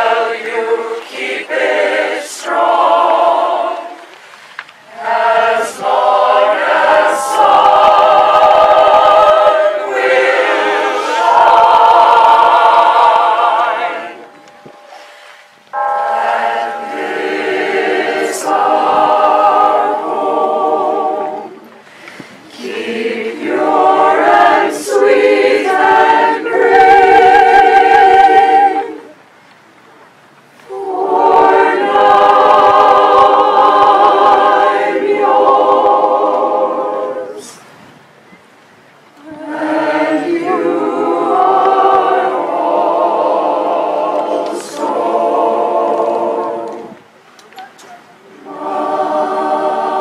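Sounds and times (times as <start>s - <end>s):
choir singing a cappella: 0.0s - 29.2s, 30.6s - 37.8s, 39.2s - 47.2s, 48.2s - 50.0s
singers breathing: 4.2s - 4.6s, 14.8s - 15.6s, 21.8s - 22.5s.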